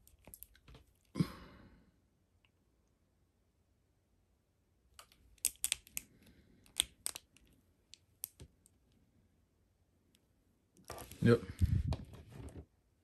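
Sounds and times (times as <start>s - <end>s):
plastic action figure clicking: 5.0s - 8.5s.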